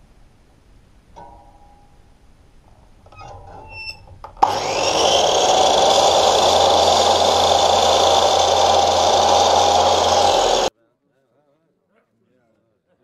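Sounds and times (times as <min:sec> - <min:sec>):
mitre saw motor whine: 0:04.4 - 0:10.7.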